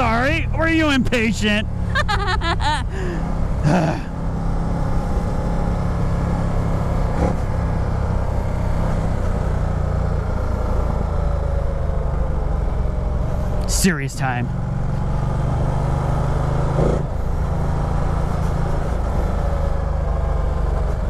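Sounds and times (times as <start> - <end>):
wind and road noise: 0.0 - 21.0.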